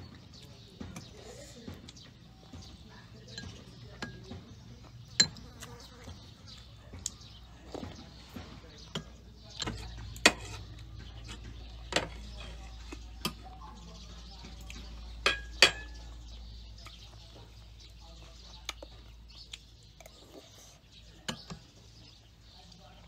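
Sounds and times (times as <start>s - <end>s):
cutlery clinking on plates: 3.3s - 4.5s, 7.8s - 13.4s, 15.2s - 16.1s.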